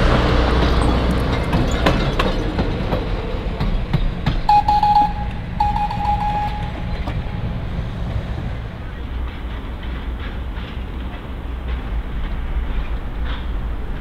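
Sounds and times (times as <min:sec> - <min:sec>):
train engine rumble: 0:00.0 - 0:14.0
high steady tone: 0:04.5 - 0:07.6.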